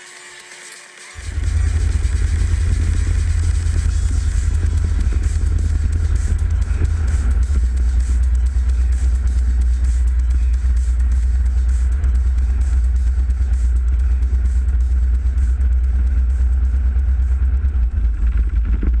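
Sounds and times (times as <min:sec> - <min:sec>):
light aircraft engine droning: 0:01.2 - 0:15.2.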